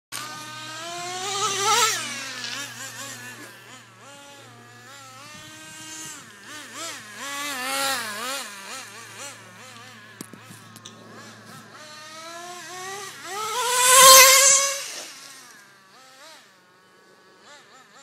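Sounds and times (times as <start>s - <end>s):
small engine high buzzing whine: 0.1s - 18.0s.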